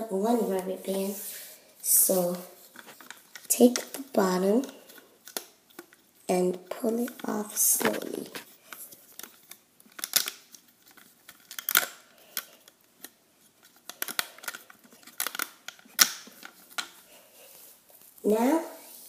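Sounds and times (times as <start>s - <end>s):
rubber bands clicking and snapping: 3.0s - 6.0s, 9.2s - 17.0s.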